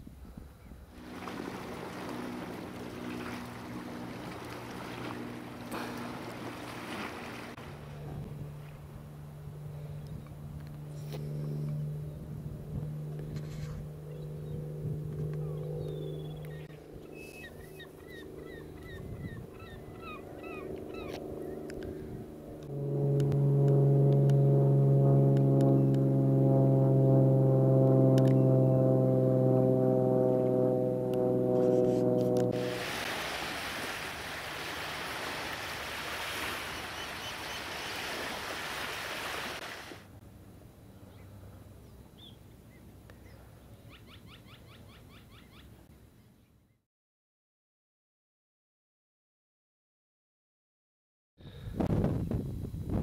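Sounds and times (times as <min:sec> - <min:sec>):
sustained low music drone: 0:00.8 - 0:33.1
motor hum: 0:00.9 - 0:38.6
birds chirping: 0:14.0 - 0:22.0, 0:36.7 - 0:38.1.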